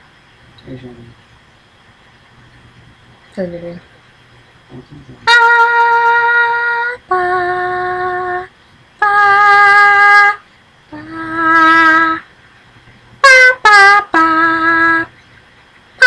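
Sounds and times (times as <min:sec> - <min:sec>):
person singing long held notes: 0:05.3 - 0:12.3, 0:13.2 - 0:15.2.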